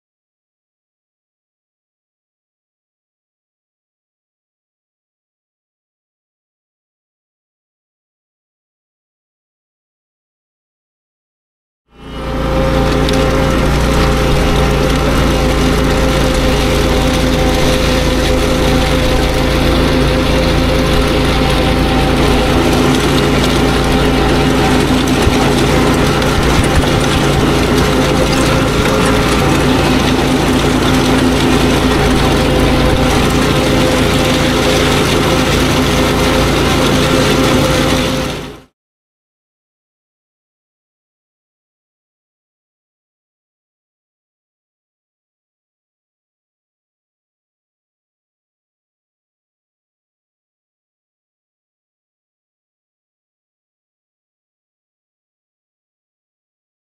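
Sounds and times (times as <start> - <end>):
mower engine running: 11.9 - 38.7.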